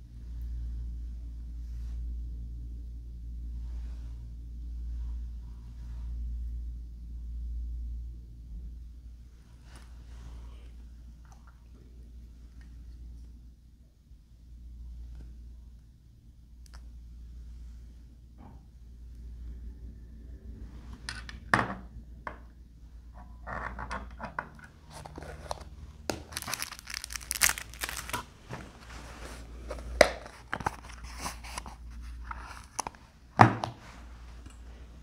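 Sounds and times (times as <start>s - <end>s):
packaging crinkling and rustling: 24.5s - 33.1s.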